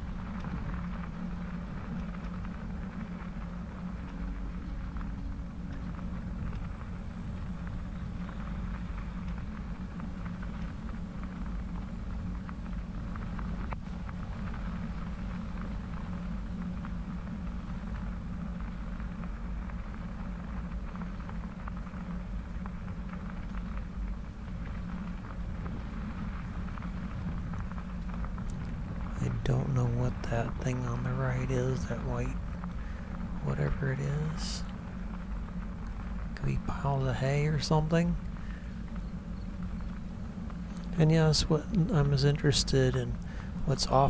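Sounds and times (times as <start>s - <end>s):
bicycle tyres rolling on wet grit: 0.0s - 44.0s.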